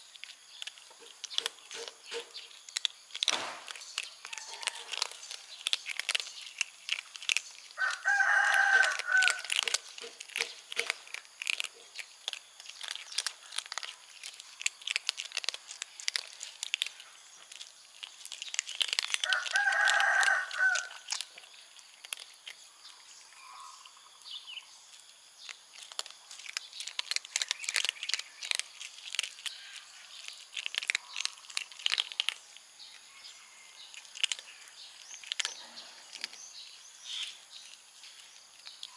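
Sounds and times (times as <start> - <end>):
kittens crunching dry kibble: 0.0 - 38.9
rooster crowing: 4.3 - 5.1, 7.8 - 9.5, 19.2 - 21.0.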